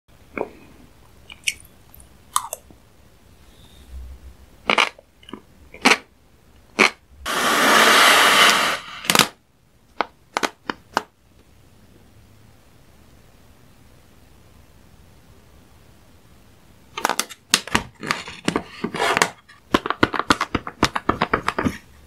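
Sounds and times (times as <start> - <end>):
mouth sounds of eating: 4.6 - 6.1
loud harsh hiss: 7.2 - 9.4.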